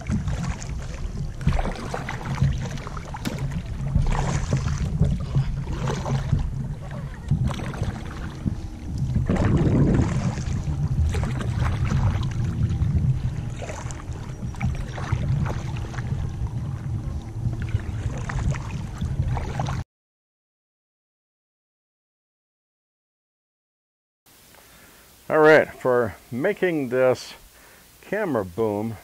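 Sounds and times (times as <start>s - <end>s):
paddle splashing and dripping: 0.0s - 19.8s
wind rumble on microphone: 0.0s - 19.8s.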